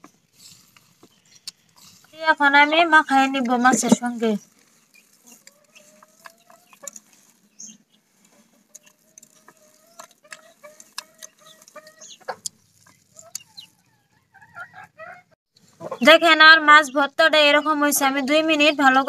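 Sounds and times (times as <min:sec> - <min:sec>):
chickens clucking: 0:02.9 - 0:16.2.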